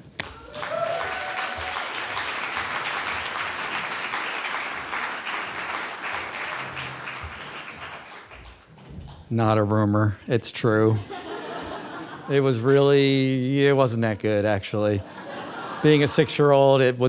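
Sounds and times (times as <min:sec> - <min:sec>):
audience applauding: 0:00.2 - 0:09.2.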